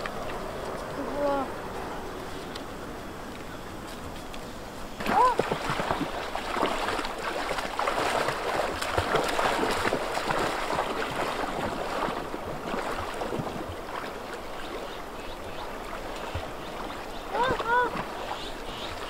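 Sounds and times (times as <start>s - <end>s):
river rushing over stones: 5.0s - 19.0s
splashing through water: 5.0s - 19.0s.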